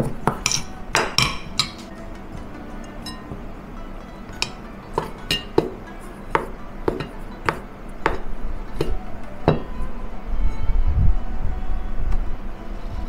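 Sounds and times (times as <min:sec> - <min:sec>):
metal spoon clinking on steel bowl: 0:00.0 - 0:02.0, 0:02.8 - 0:03.4, 0:04.0 - 0:09.7.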